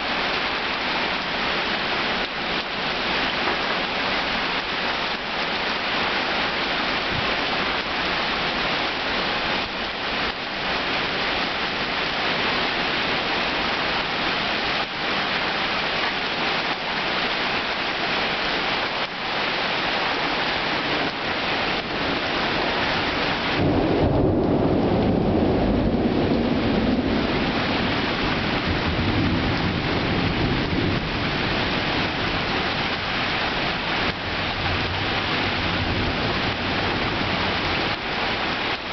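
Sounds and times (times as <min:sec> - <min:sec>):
heavy rain falling: 0:00.0 - 0:38.9
deep roll of thunder: 0:23.5 - 0:32.4.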